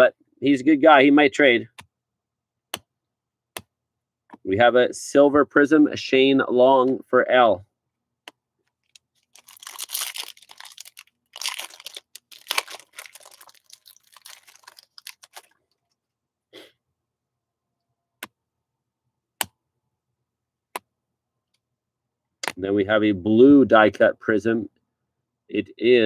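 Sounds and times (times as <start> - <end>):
foil wrapper tearing and crinkling: 8.8 - 15.6.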